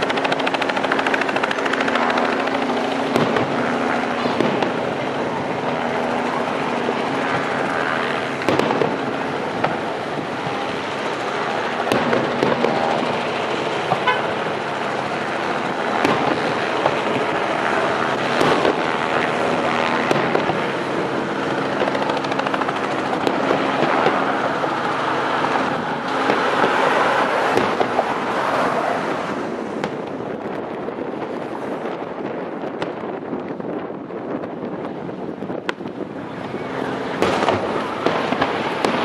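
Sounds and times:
fireworks bursting with bangs: 0:00.0 - 0:39.0
fireworks crackle: 0:00.0 - 0:39.0
car horns honking: 0:13.9 - 0:14.4.

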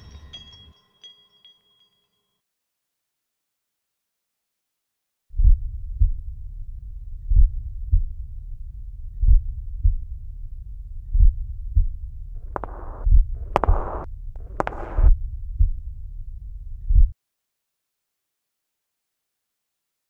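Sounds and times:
heartbeat double thump: 0:05.4 - 0:06.3, 0:07.3 - 0:08.3, 0:09.2 - 0:10.2, 0:11.1 - 0:15.8, 0:16.9 - 0:17.2
rushing bursts with sharp crack: 0:12.4 - 0:15.1.

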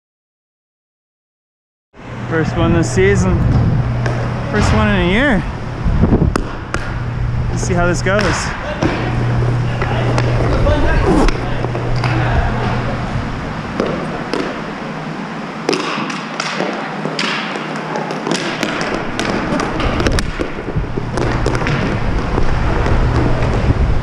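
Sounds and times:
hockey sticks and puck clacking: 0:08.2 - 0:12.2, 0:13.8 - 0:14.6, 0:15.6 - 0:23.7
inline skate wheels rushing: 0:08.6 - 0:13.0, 0:15.8 - 0:24.0.

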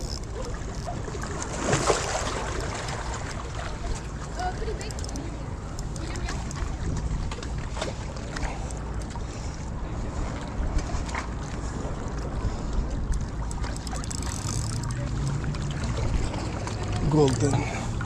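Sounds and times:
sea water washing against rocks: 0:00.0 - 0:08.9
wind buffeting microphone: 0:00.0 - 0:18.0
faint clicks: 0:04.8 - 0:06.7.

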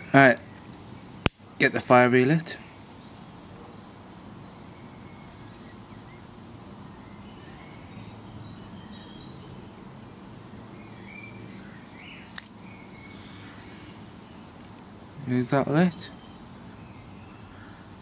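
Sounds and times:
sharp click: 0:00.6 - 0:01.4, 0:12.3 - 0:12.6
faint bird chirps: 0:02.6 - 0:09.6.

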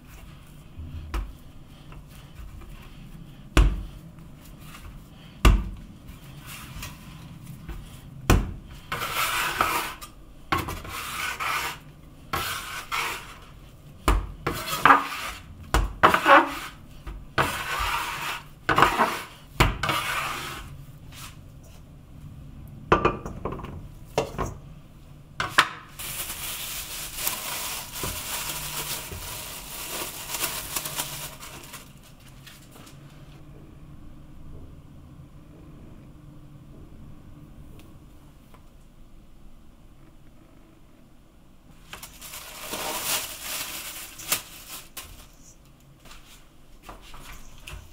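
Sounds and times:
cling film crinkling: 0:25.9 - 0:33.0, 0:41.8 - 0:45.7.

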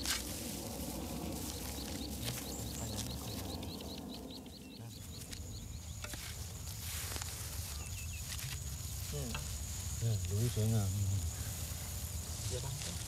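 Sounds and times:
low rumble: 0:00.0 - 0:06.6
steady high whine: 0:00.0 - 0:10.0
rustles of straw stubble: 0:00.0 - 0:13.0.

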